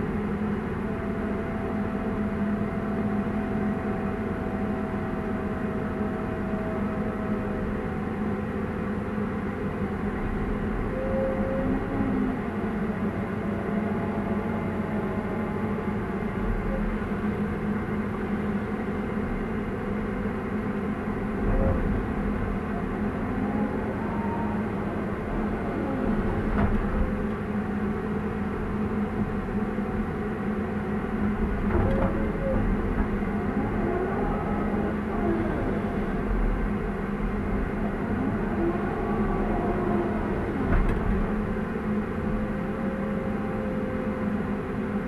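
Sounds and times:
excavator diesel engine running: 0.0s - 45.0s
hydraulic whine: 19.4s - 45.0s.

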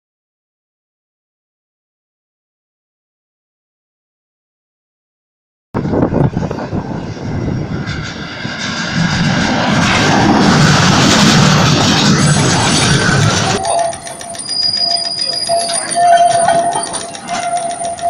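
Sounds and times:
tram wheels rushing on rail: 5.8s - 18.0s.

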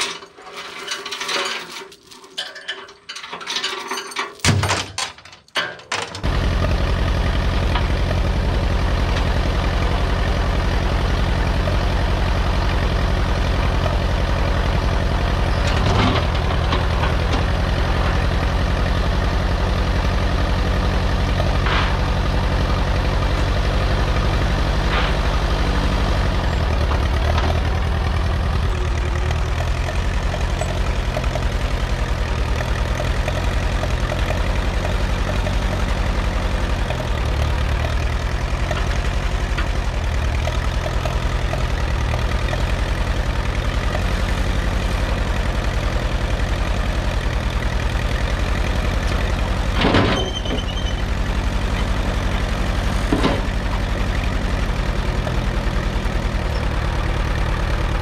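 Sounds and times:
sharp metal clanks: 0.0s - 6.2s
rough tractor engine running: 0.0s - 58.0s.

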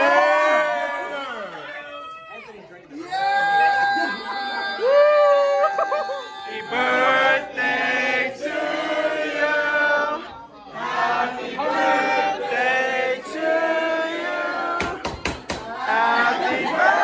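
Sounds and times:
group of people singing: 6.4s - 17.0s.

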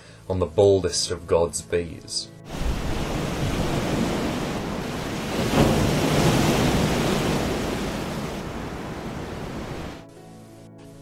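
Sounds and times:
sea waves rushing: 2.5s - 10.1s.

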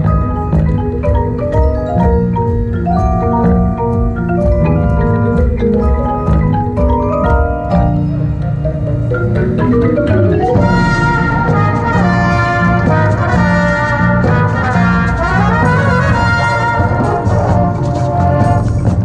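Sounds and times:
marimbas and percussion: 0.0s - 19.0s
brass playing held chords: 10.5s - 19.0s.

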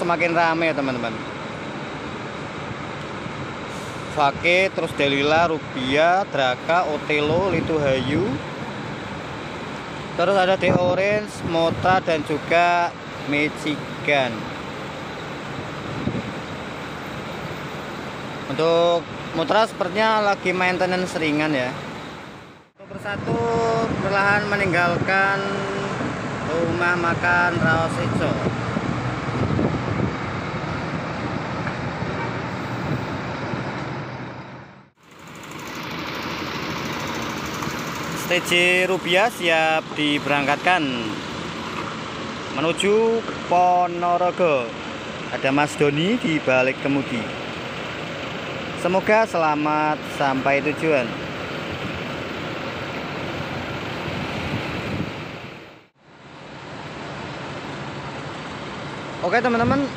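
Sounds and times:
bus engine droning: 0.0s - 59.9s
wind noise on microphone: 7.1s - 8.4s, 10.5s - 12.2s, 15.8s - 16.5s, 23.0s - 25.4s, 27.4s - 34.0s, 53.4s - 55.8s.

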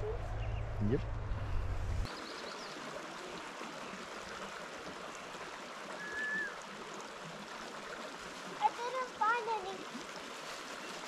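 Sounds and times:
stream babbling: 2.1s - 11.0s
short high whistle: 6.0s - 6.6s.

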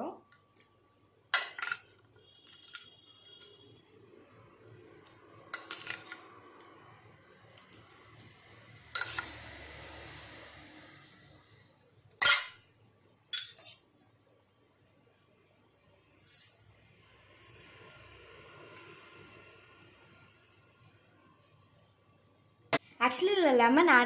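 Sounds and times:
spoon scraping steel bowl: 8.8s - 9.6s, 13.3s - 14.7s, 16.2s - 16.6s.

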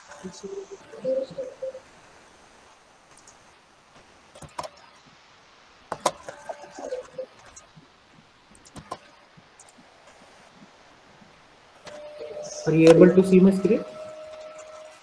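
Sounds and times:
faint pitched tone: 0.0s - 1.9s, 6.4s - 7.3s, 11.9s - 15.0s
sharp clicks: 8.5s - 9.8s.

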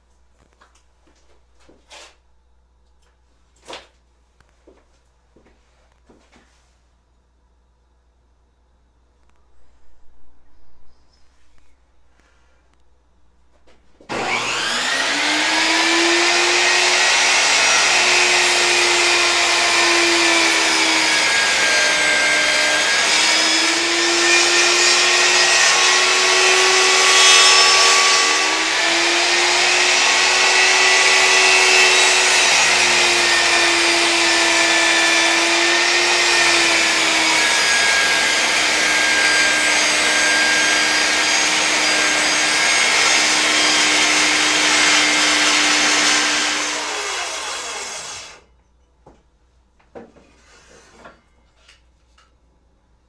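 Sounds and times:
table saw cutting log: 14.1s - 48.4s.

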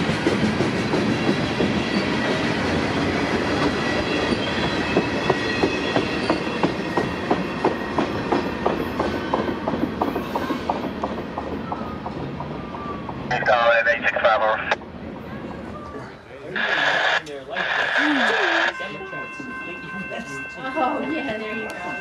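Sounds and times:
train wheels clacking on rails: 0.0s - 13.3s.

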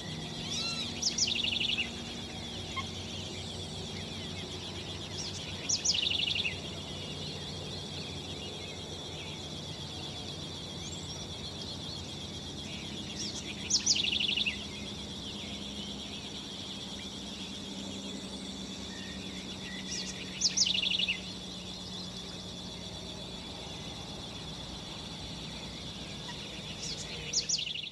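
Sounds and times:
bird calling with dry rattle: 0.0s - 9.1s
high-pitched background drone: 0.0s - 27.9s.

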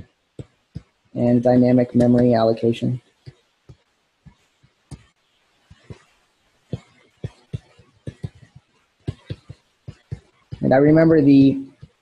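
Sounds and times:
stylus tapping on glass screen: 3.2s - 11.1s.

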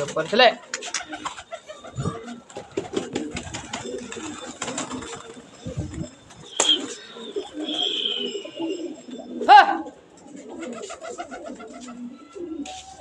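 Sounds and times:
pigeons cooing: 0.0s - 13.0s
high whistle-like note: 6.5s - 9.0s
short loud bird call: 6.6s - 8.7s.

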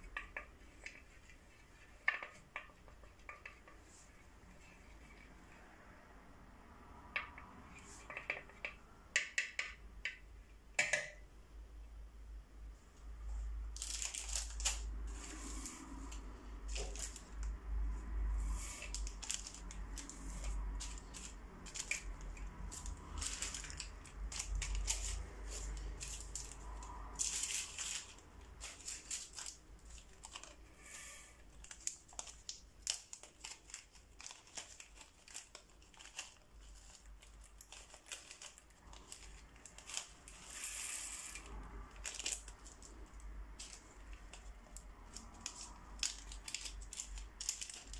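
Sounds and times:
plastic bags crinkling: 13.7s - 17.6s, 18.3s - 47.9s.

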